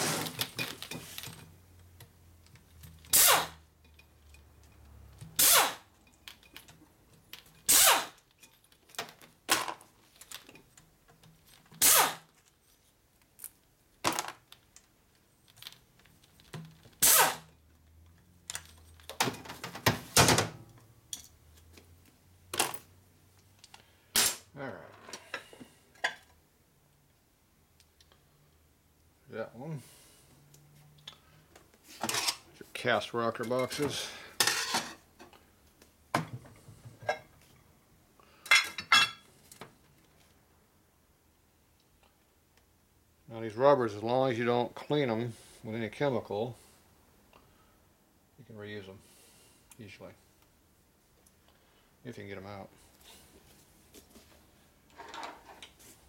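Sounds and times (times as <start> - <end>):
air tool bursts: 3.1 - 3.6, 5.4 - 5.9, 7.7 - 8.2, 11.8 - 12.3, 17.0 - 17.4.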